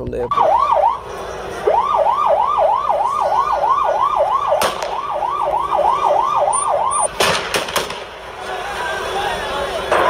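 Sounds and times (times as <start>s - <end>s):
vehicle siren yelping: 0.3s - 7.2s.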